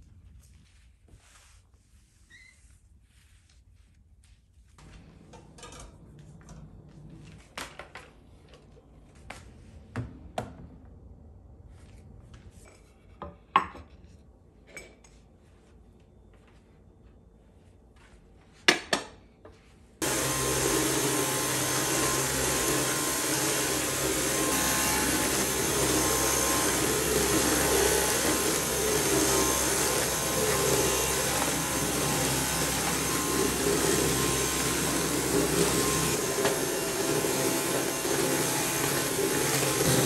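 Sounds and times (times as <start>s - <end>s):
electric appliance motor running: 20.0s - 40.0s.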